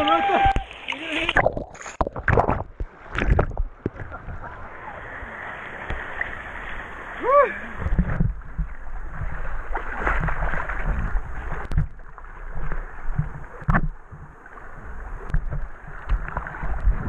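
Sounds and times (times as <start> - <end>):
water lapping against inner tube: 0.0 - 17.0.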